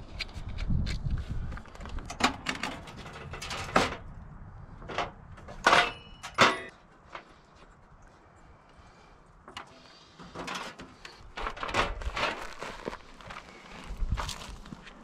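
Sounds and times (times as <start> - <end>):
metal knocks and clanks: 4.8 - 6.8.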